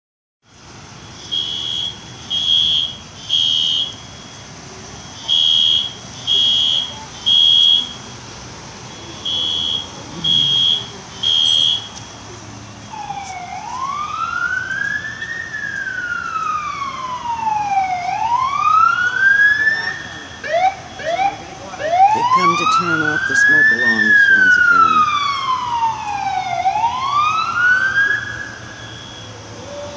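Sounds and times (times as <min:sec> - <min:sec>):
emergency vehicle siren wailing: 0:01.0 - 0:08.2, 0:08.8 - 0:29.9
fire alarm beeps: 0:01.2 - 0:04.4, 0:05.1 - 0:08.1, 0:08.9 - 0:12.0, 0:28.5 - 0:29.3.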